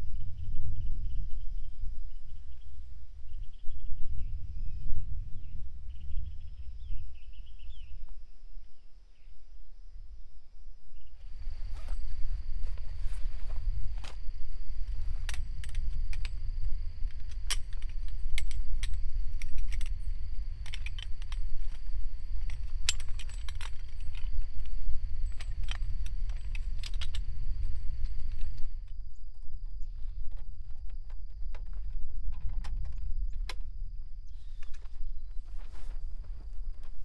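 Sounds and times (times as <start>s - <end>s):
wind buffeting microphone: 0.0s - 10.3s, 11.0s - 37.0s
light taps and clinks: 14.9s - 16.4s, 17.0s - 28.7s.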